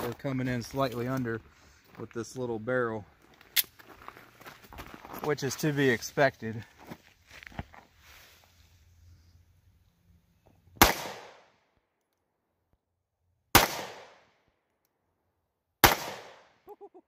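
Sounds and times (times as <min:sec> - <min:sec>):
pistol shots with echo: 0:10.8 - 0:11.4, 0:13.6 - 0:14.2, 0:15.8 - 0:16.5.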